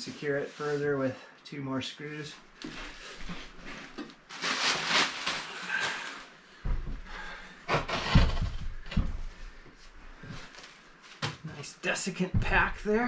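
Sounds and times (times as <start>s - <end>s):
plastic wrapping crinkling: 3.9s - 6.2s
dull thumps on wooden floor: 12.3s - 13.0s.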